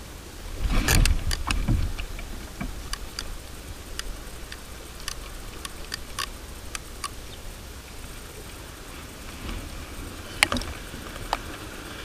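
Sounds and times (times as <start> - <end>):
steady low rumble: 0.0 - 12.0
fishing reel clicking: 2.9 - 7.2.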